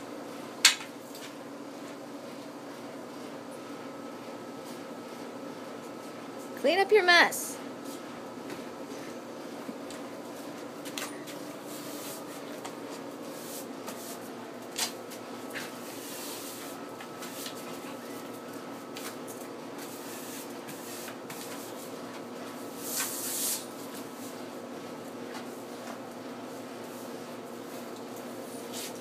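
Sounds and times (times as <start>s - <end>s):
steady low hum: 0.0s - 29.0s
broom knocking and scraping concrete: 22.8s - 24.1s.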